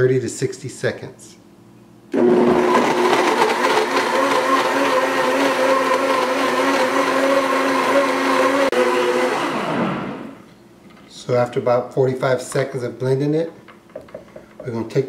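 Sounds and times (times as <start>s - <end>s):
blender running: 2.2s - 10.4s.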